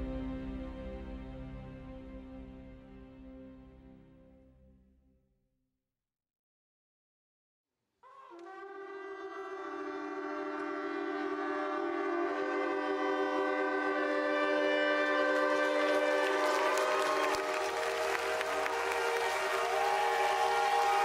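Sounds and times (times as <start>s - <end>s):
shofars blowing a buzzing chord: 8.2s - 21.0s.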